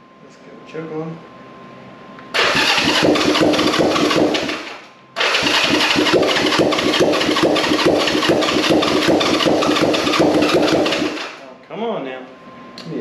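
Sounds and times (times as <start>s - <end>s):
electric starter cranking engine: 2.3s - 11.4s.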